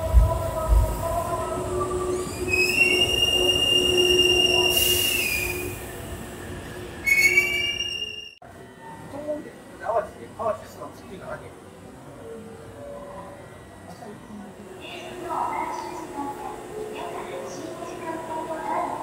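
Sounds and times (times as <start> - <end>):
train wheels squealing on rails: 2.1 - 8.4.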